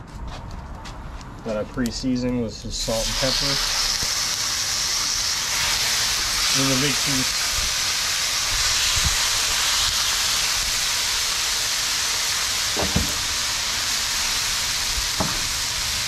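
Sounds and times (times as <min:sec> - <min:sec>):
steaks sizzling on griddle: 0:02.8 - 0:16.0
steak knocking on griddle: 0:12.7 - 0:13.6, 0:15.1 - 0:15.7.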